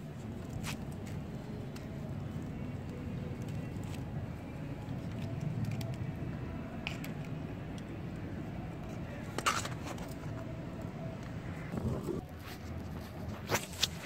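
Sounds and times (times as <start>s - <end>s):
low background rumble: 10.4s - 12.9s.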